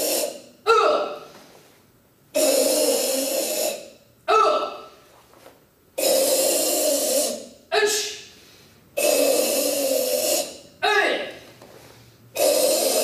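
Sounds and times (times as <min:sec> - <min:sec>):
forceful hissing exhalations: 0:02.4 - 0:03.9.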